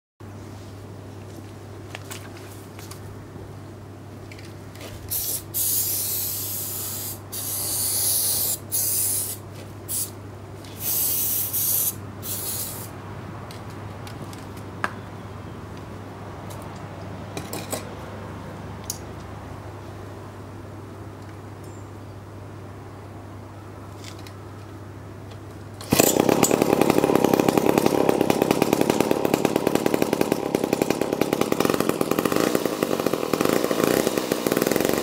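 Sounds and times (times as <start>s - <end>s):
aerosol spray can hissing: 5.1s - 10.2s, 10.8s - 12.9s.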